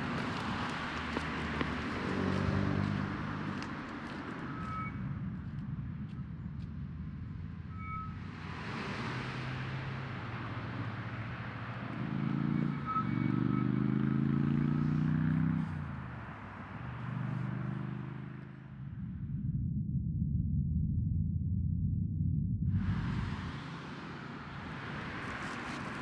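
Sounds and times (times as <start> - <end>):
vehicle engine running: 0.0 - 8.4, 10.0 - 26.0
road noise of passing vehicle: 0.0 - 19.5, 22.7 - 26.0.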